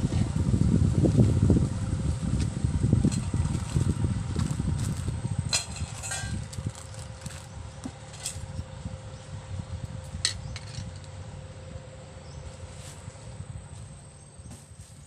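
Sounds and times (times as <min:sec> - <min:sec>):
metal bowl and ladle clinking: 0:05.6 - 0:06.4.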